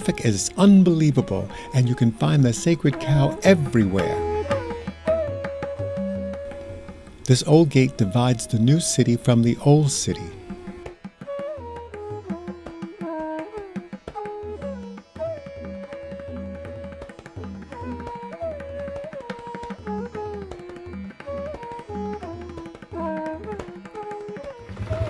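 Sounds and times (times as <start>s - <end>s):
sliding melody line: 0.0s - 10.9s
hand-drum strokes: 0.0s - 25.0s.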